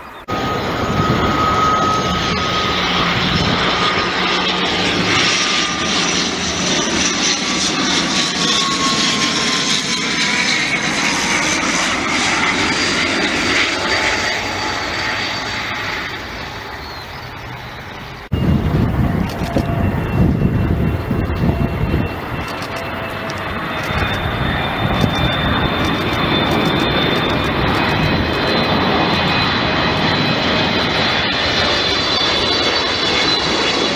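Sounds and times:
turboprop aircraft drone: 0.0 - 33.9.

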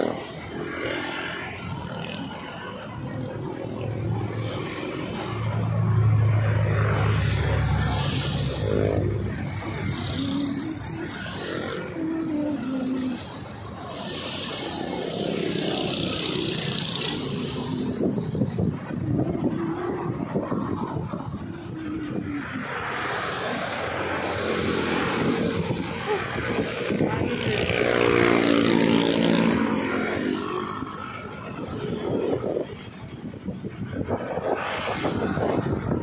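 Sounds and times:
motorcycles passing: 0.0 - 36.0
road traffic passing: 0.0 - 36.0
wind buffeting microphone: 14.8 - 36.0.

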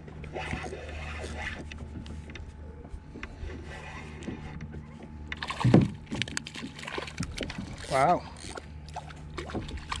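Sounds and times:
fish splashing: 5.4 - 7.8
fishing reel whirring: 7.2 - 8.9.

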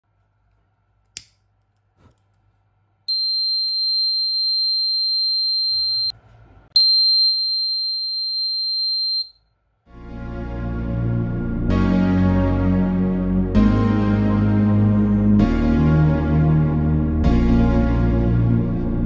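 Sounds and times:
high-pitched buzzer alarm: 3.1 - 6.1.

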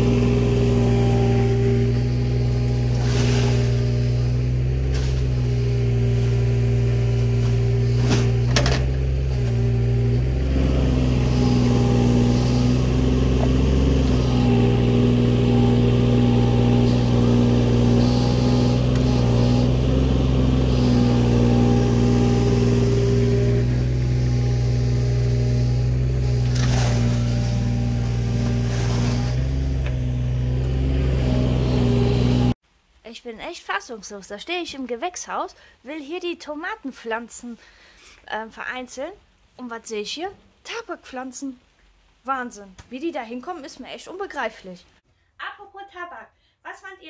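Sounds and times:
excavator diesel engine running: 0.0 - 32.6.

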